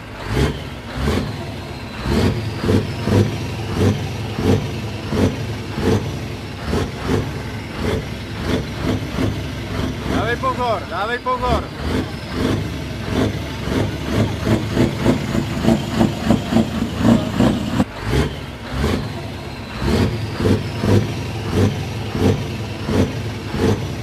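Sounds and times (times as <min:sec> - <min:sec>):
diesel truck engine revving: 0:00.0 - 0:24.0.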